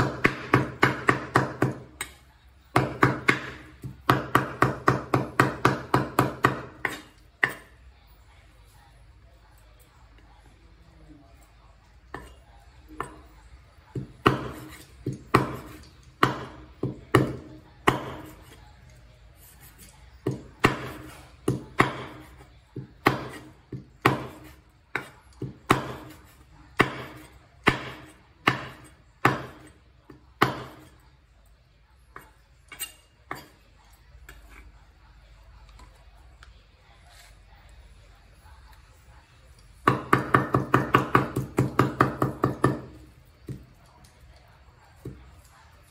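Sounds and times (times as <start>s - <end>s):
knife chopping on wooden board: 0.0s - 2.1s, 13.9s - 18.6s, 20.2s - 29.7s, 30.4s - 30.9s.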